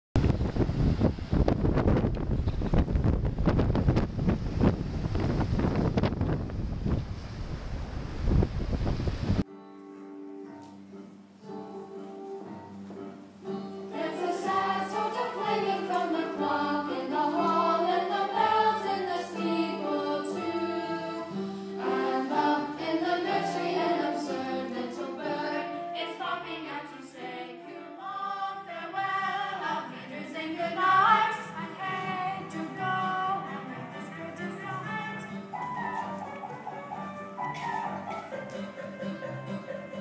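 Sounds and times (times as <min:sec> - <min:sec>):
young voices singing together: 0:11.4 - 0:35.6.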